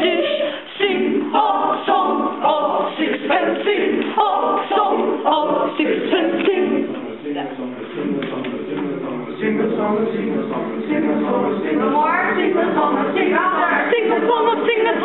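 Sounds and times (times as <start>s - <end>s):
choir singing a cappella: 0.0s - 15.0s.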